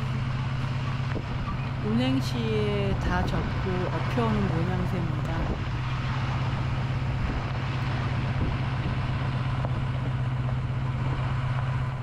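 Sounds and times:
truck engine drone: 0:00.0 - 0:12.0
tyres on gravel road: 0:00.0 - 0:12.0.

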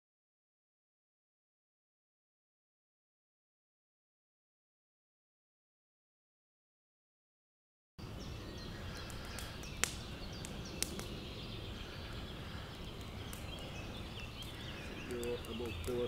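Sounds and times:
faint bird chirps: 0:08.0 - 0:16.0
outdoor background noise: 0:08.0 - 0:16.0.

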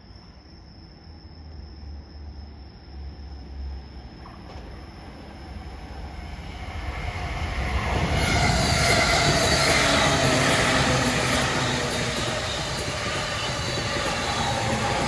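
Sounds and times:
electric train passing: 0:02.7 - 0:15.0
resonant rail grinding tone: 0:04.8 - 0:15.0.

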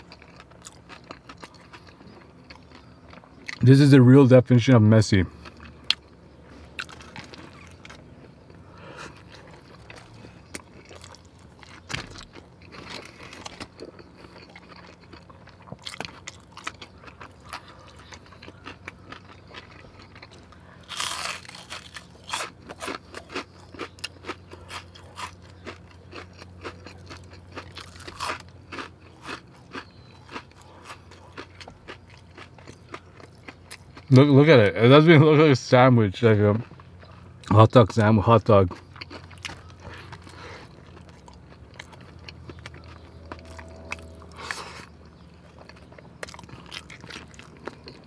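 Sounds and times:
chewing with wet mouth clicks: 0:00.0 - 0:03.6, 0:05.3 - 0:34.3, 0:38.6 - 0:48.0
biting into food: 0:05.4 - 0:34.2, 0:38.7 - 0:48.0.

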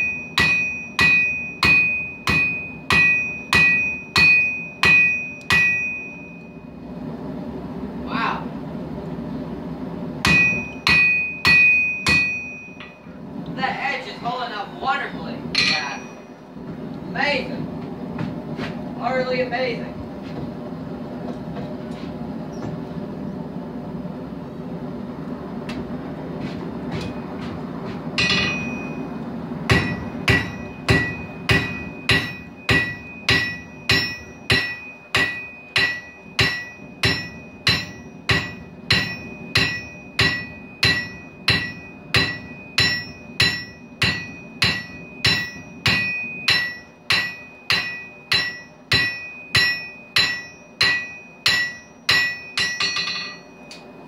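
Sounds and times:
hammer striking steel on anvil: 0:00.0 - 0:06.7, 0:10.2 - 0:13.1, 0:15.5 - 0:16.4, 0:28.2 - 0:54.0.

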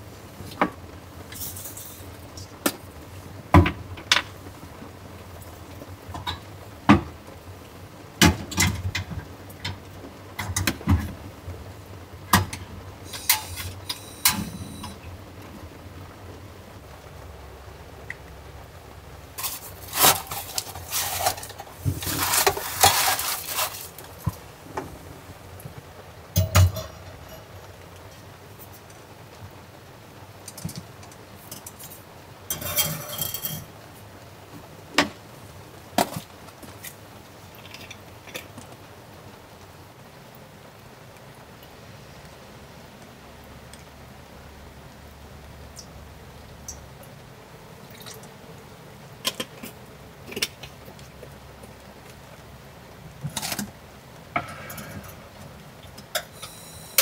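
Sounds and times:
faint rain hiss: 0:00.0 - 0:57.0
gas canister clicking into stove: 0:12.4 - 0:15.0
bag rustling: 0:19.4 - 0:25.1.

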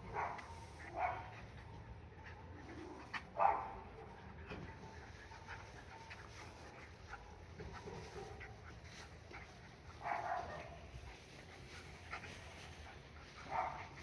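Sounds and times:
dogs play-wrestling: 0:00.0 - 0:14.0
dog barking: 0:00.1 - 0:01.3, 0:03.4 - 0:04.1, 0:10.0 - 0:10.8, 0:13.5 - 0:14.0.

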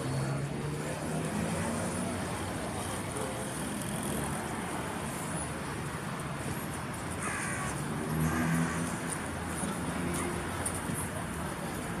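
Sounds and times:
city traffic hum: 0:00.0 - 0:12.0
crow cawing: 0:07.2 - 0:07.8.

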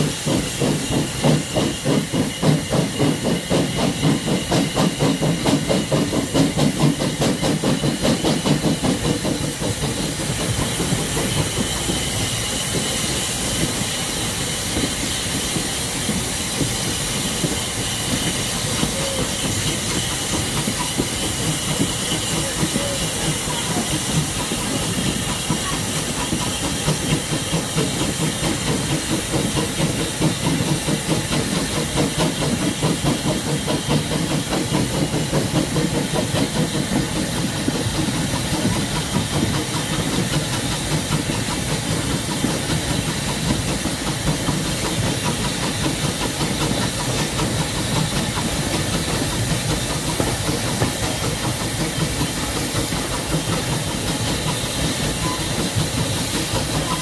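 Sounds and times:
steam hissing: 0:00.0 - 0:57.0
train wheels clattering on rails: 0:00.0 - 0:57.0.

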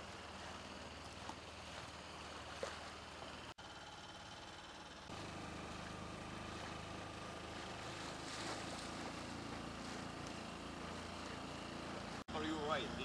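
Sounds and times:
motorboat engine running: 0:00.0 - 0:13.0
water rushing past hull: 0:05.5 - 0:12.3.

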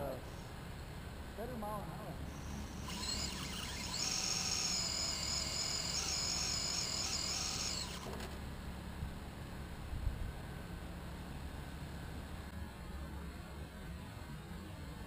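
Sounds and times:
electric motor whining: 0:02.3 - 0:08.3.

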